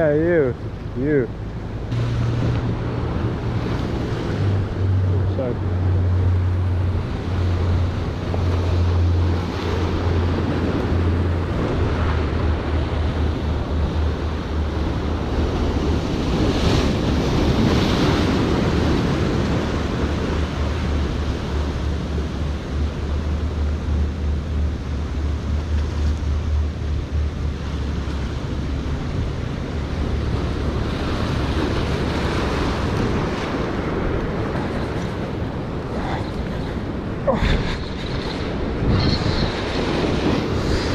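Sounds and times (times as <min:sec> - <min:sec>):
wind buffeting microphone: 0:00.0 - 0:40.9
surf breaking over rocks: 0:30.1 - 0:40.9.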